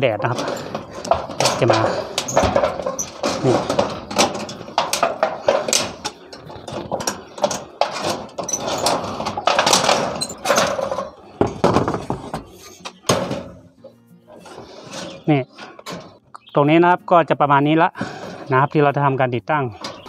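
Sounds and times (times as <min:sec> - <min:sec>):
sheet metal clatter: 0:00.1 - 0:13.7.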